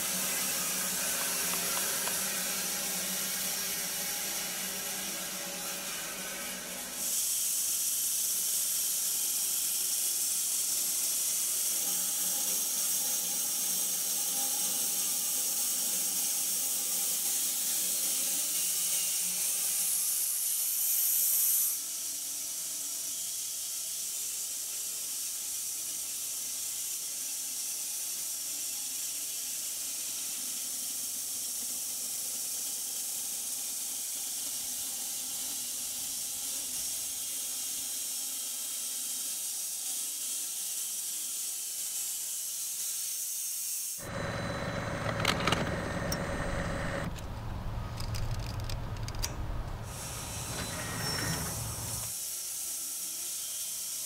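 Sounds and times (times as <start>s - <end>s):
bandsaw blade cutting log: 0.0s - 8.4s.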